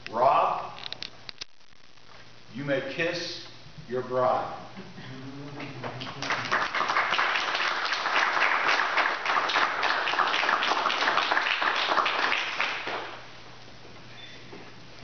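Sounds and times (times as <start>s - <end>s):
crowd applauding: 5.6s - 13.2s.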